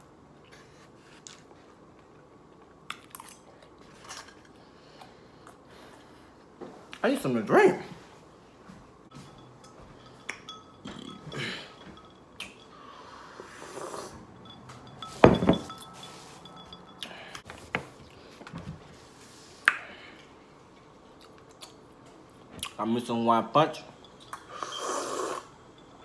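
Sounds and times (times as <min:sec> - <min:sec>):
tableware clinking and tapping: 0:09.1 - 0:12.8, 0:14.4 - 0:17.2.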